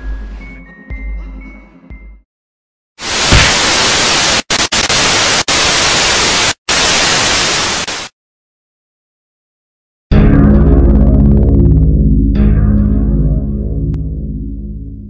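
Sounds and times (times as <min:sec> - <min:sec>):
tv static hiss: 0:03.0 - 0:08.1.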